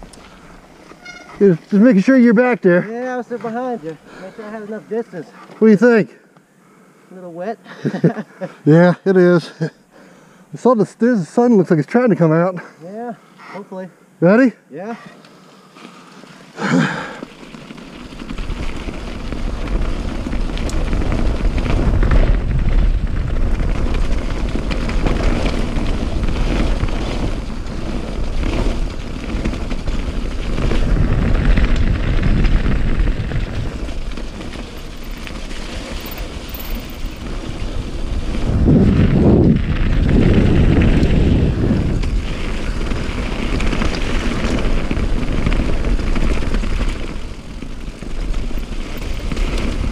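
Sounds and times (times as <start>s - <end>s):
wind rushing over microphone: 18.3s - 49.9s.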